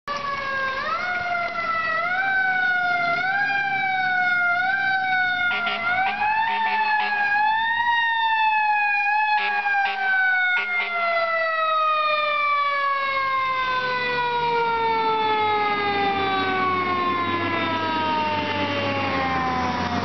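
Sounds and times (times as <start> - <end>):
fire engine siren wailing: 0.1 - 20.0
low air horn blasts: 5.4 - 7.4, 9.4 - 11.2.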